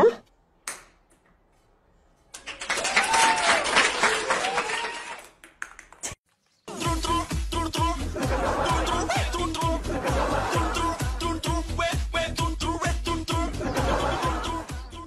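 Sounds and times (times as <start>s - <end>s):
crowd cheering: 2.4s - 5.4s, 8.2s - 11.3s, 13.6s - 14.9s
applause: 2.4s - 6.2s.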